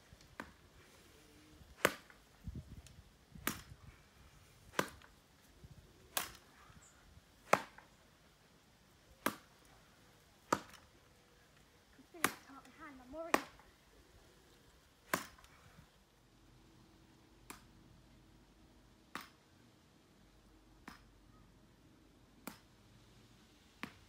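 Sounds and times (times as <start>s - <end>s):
plastic bats hitting ball: 1.8s - 2.2s, 3.4s - 3.8s, 4.7s - 5.1s, 6.1s - 6.5s, 7.5s - 7.9s, 9.2s - 9.6s, 10.5s - 10.9s, 12.2s - 12.5s, 13.3s - 13.6s, 15.1s - 15.5s.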